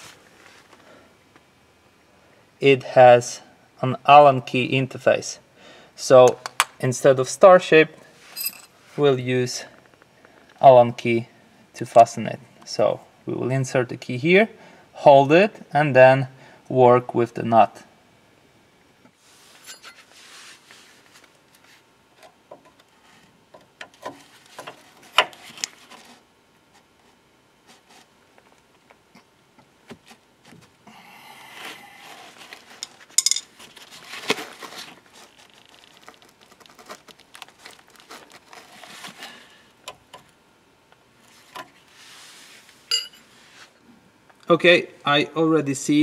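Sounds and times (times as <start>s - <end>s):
spanner clinking and scraping on nut: 8.3s - 8.7s, 32.7s - 33.5s.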